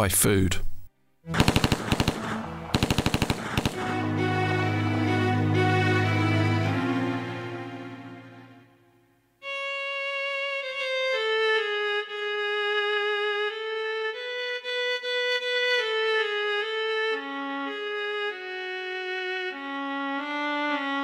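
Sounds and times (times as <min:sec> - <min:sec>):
slow solo violin melody: 0:03.6 - 0:08.8, 0:09.4 - 0:21.0.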